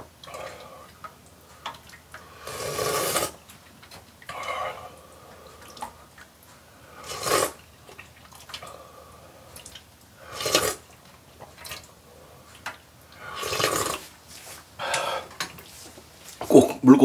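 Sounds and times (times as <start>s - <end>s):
person slurping noodles: 2.4s - 3.4s, 6.9s - 7.6s, 10.2s - 10.9s, 13.2s - 14.1s.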